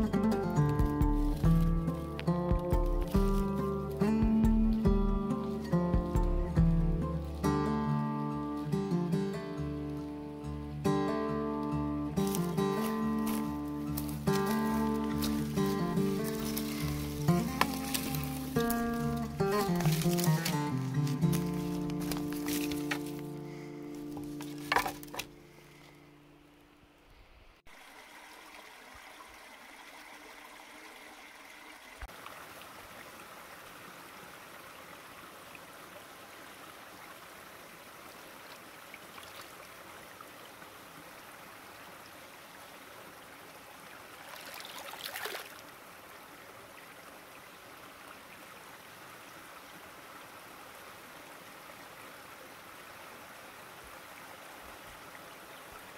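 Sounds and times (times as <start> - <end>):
stream water rushing: 0.0 - 55.9.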